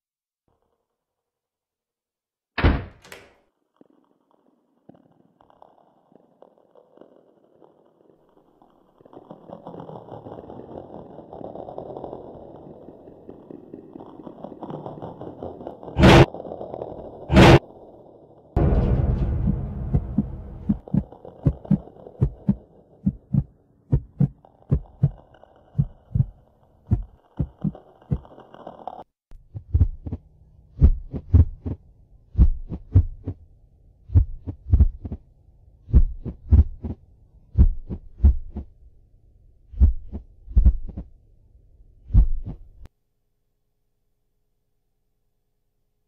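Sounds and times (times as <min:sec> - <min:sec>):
low drone: 0:18.6 - 0:23.4
quick heartbeat thumps: 0:19.5 - 0:25.2, 0:26.9 - 0:28.2, 0:29.4 - 0:33.4, 0:34.1 - 0:35.2, 0:35.9 - 0:38.7, 0:39.8 - 0:41.1, 0:42.1 - 0:42.7
slow lub-dub heartbeat: 0:20.6 - 0:25.2, 0:25.8 - 0:26.3, 0:26.9 - 0:28.2, 0:29.4 - 0:33.4, 0:34.1 - 0:35.2, 0:35.9 - 0:38.7, 0:39.8 - 0:41.1, 0:42.1 - 0:42.9.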